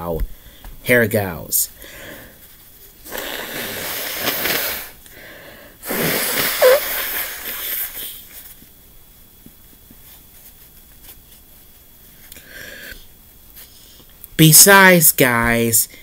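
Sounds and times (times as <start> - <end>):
person blowing nose: 3.0 - 5.0, 5.8 - 8.2.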